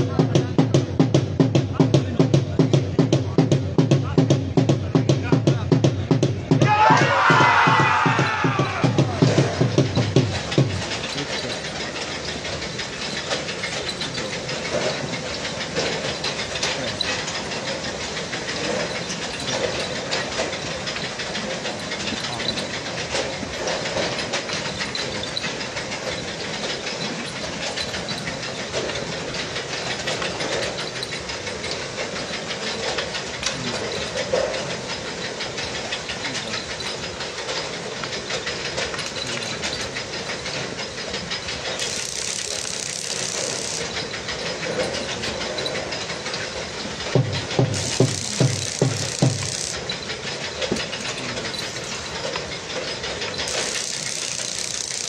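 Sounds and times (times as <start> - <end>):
faint voices: 0.0 - 40.8, 43.1 - 55.0.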